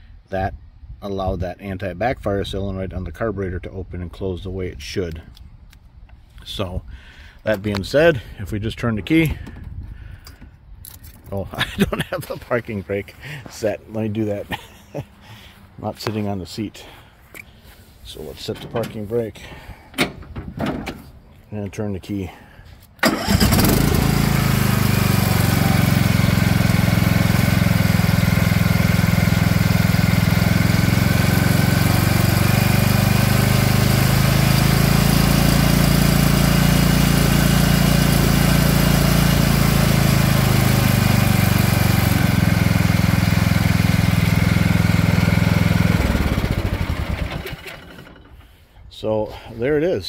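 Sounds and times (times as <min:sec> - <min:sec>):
lawn tractor engine running: 0:23.0 - 0:48.6.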